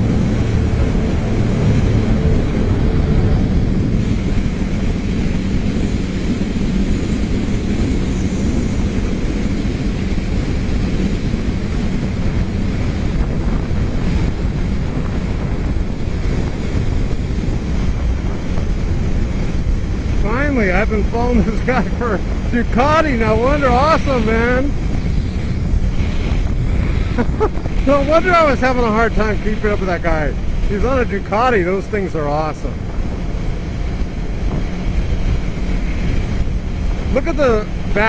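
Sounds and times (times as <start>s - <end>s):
motorcycle engine running: 0.0s - 29.3s
wind roaring over microphone: 0.0s - 38.0s.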